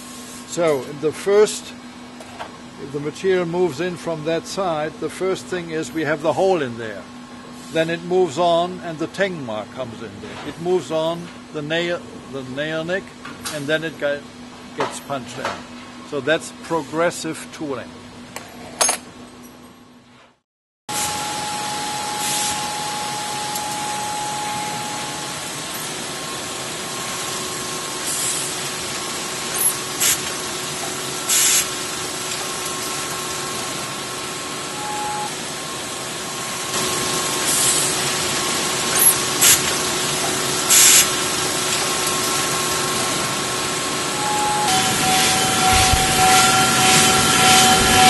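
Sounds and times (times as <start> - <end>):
factory machinery drone: 20.9 - 48.0
faint hum tones: 20.9 - 48.0
short bursts of high hiss: 31.3 - 31.7, 40.7 - 41.1.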